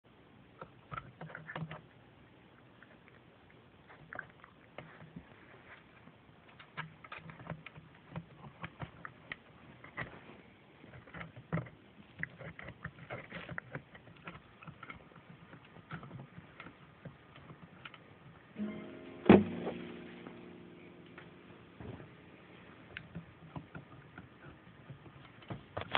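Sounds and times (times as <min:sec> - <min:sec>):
puppies gnawing on a chair: 0:00.5 - 0:02.0, 0:02.6 - 0:18.6, 0:22.9 - 0:25.9.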